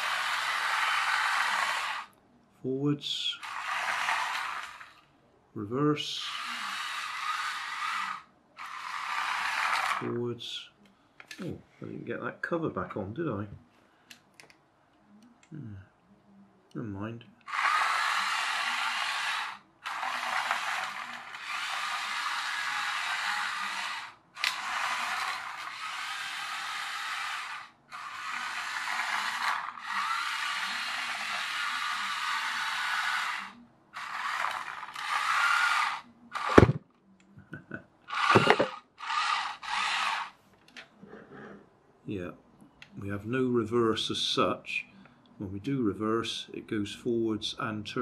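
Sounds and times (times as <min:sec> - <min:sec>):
toy truck motor whirring: 0:00.0 - 0:02.2, 0:03.4 - 0:05.1, 0:06.1 - 0:10.2, 0:17.4 - 0:36.8, 0:38.1 - 0:40.4.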